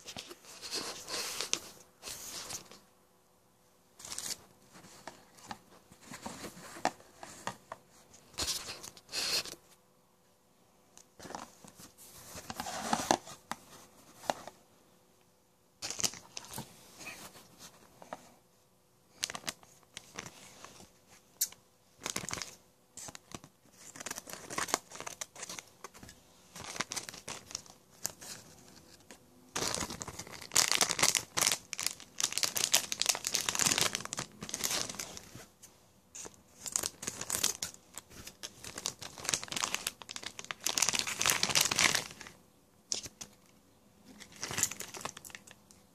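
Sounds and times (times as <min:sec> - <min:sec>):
plastic packaging crinkling: 0:15.8 - 0:16.6, 0:21.4 - 0:28.5, 0:29.5 - 0:35.4, 0:36.2 - 0:43.4, 0:44.1 - 0:45.7.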